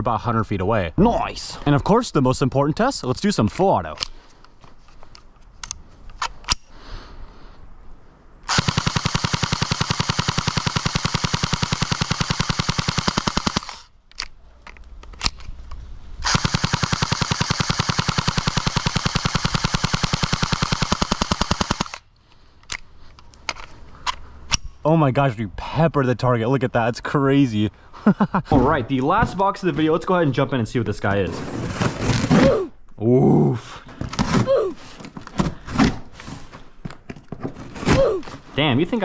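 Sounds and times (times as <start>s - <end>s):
airsoft rifle full auto fire: 8.5s - 13.9s, 16.2s - 22.0s
sharp clicks: 8.5s - 15.5s, 16.2s - 22.0s.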